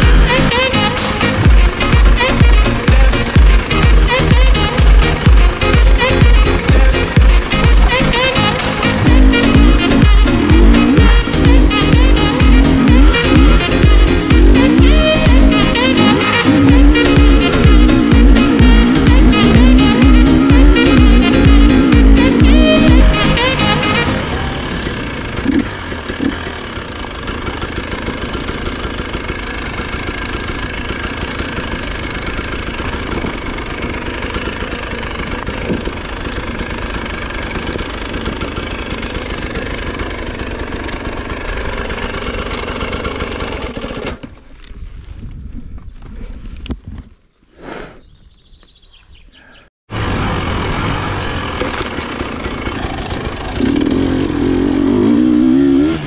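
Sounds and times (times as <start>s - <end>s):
dirt bike engine revving: 0.0s - 44.4s, 49.9s - 56.0s.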